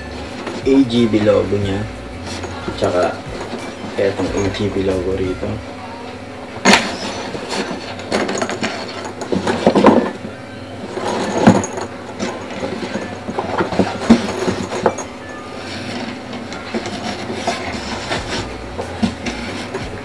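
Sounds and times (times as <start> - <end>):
faint steady hum: 0.0 - 20.0
helmet case rubbing and scuffing: 6.7 - 10.2, 11.0 - 20.0.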